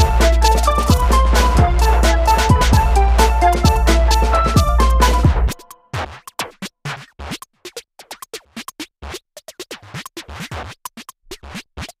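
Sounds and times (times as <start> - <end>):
choppy electronic music: 0.0 - 6.1.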